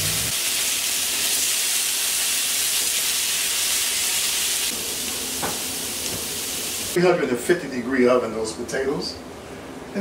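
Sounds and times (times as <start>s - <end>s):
potatoes sizzling in hot oil: 0.0s - 7.0s.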